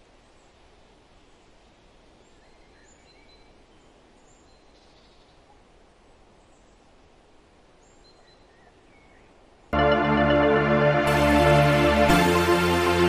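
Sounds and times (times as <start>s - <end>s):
ambient hiss: 9.8s - 13.0s.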